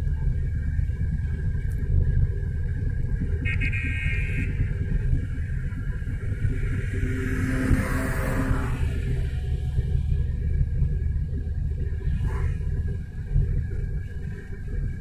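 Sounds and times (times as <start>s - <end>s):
car road and engine rumble: 0.0s - 15.0s
passing car whoosh: 6.6s - 9.4s.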